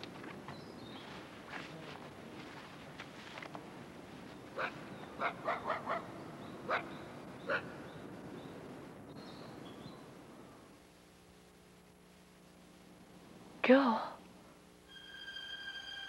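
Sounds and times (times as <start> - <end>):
dog barking: 4.6 - 6.1, 6.7 - 6.9, 7.5 - 7.7.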